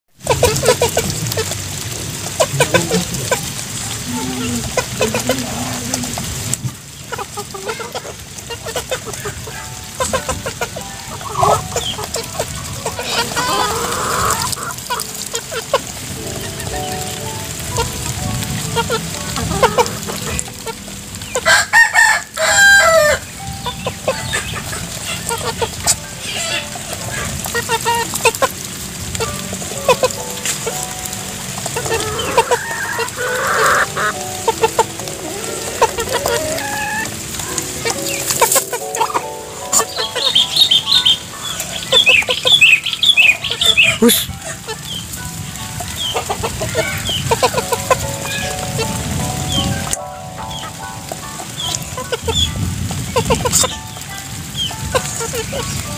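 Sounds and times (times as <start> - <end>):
chickens clucking: 0.2 - 55.9
rooster crowing: 21.4 - 23.2.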